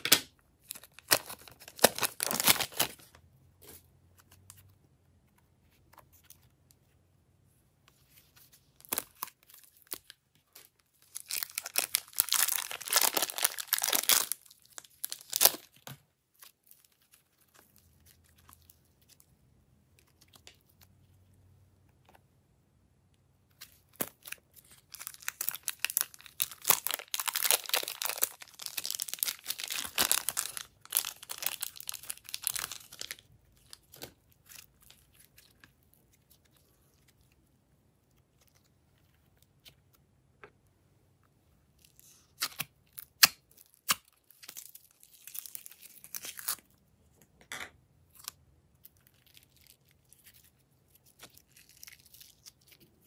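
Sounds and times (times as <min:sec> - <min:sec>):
slime crackling and tearing: 0:00.7 - 0:03.0, 0:08.8 - 0:18.6, 0:23.6 - 0:37.4, 0:41.8 - 0:46.7, 0:48.1 - 0:53.0.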